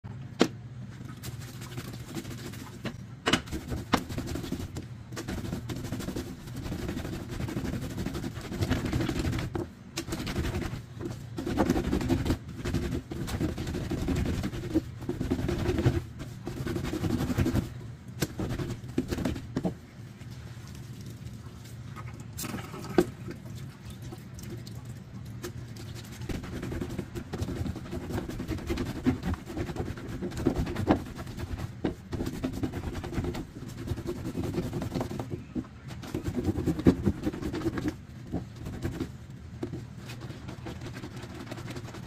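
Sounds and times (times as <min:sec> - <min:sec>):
rag scrubbed on washboard: 0:03.5 - 0:19.5, 0:26.0 - 0:42.0.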